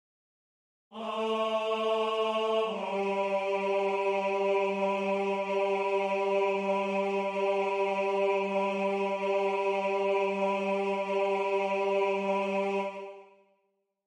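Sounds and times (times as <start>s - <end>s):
synthetic choir low tone: 0.9s - 13.4s.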